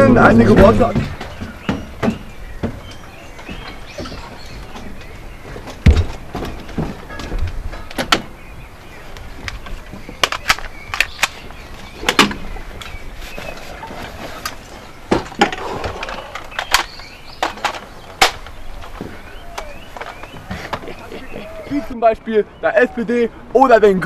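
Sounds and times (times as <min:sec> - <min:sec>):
knocks on wooden deck: 0:00.5 - 0:04.9, 0:05.5 - 0:08.3.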